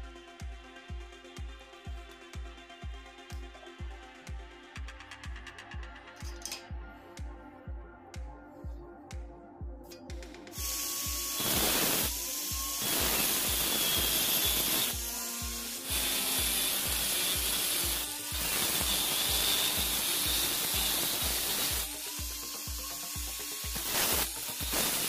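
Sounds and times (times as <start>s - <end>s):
background music with low beat: 0.0s - 25.0s
angle grinder cutting steel: 10.5s - 25.0s.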